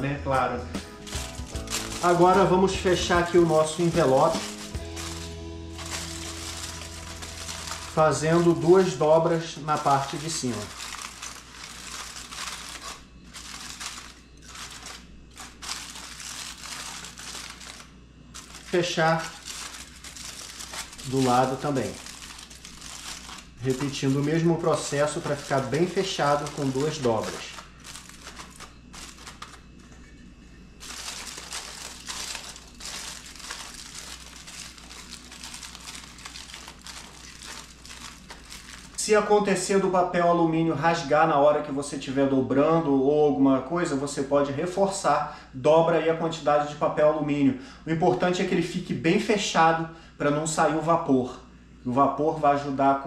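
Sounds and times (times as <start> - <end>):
aluminium foil crinkling: 1.0 - 29.9, 30.8 - 39.7.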